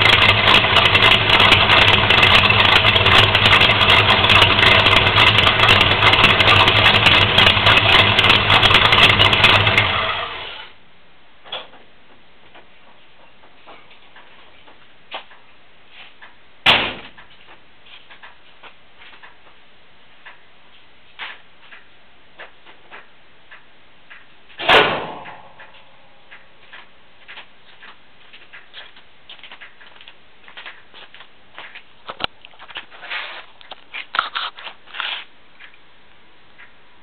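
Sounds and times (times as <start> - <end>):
loud slams: 16.6 - 17.2, 24.6 - 25.7.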